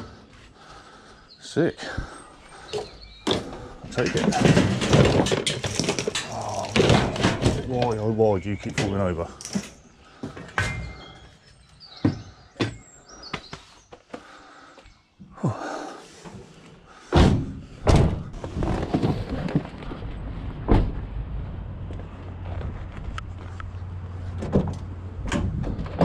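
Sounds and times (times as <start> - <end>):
scrap metal clanking: 2.9 - 8.0
van doors slamming: 17.1 - 18.4
van engine humming: 19.2 - 26.0.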